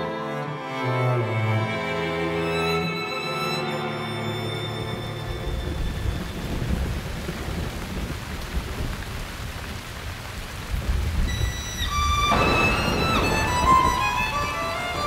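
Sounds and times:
heavy rain hissing: 3.6s - 15.0s
low rumbling thunder: 5.4s - 15.0s.

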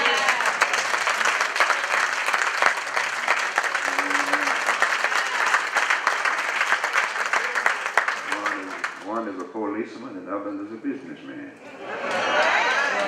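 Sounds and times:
congregation applauding: 0.0s - 9.5s.

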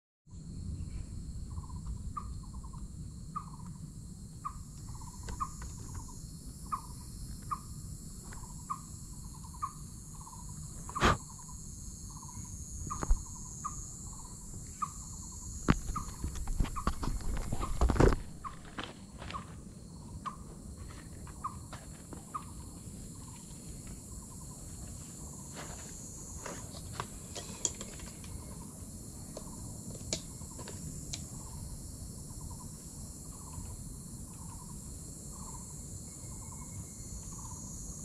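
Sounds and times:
high insect hum: 0.3s - 38.0s.

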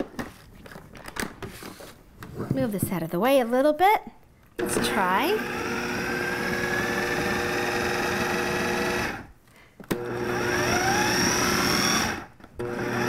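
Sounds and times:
food processor motor whine: 4.6s - 9.3s, 9.9s - 13.0s.

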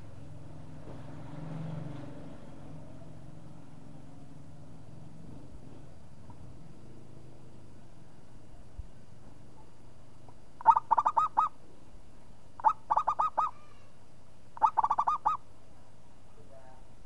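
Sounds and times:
dove cooing: 10.6s - 11.6s, 12.6s - 13.8s, 14.6s - 15.4s.

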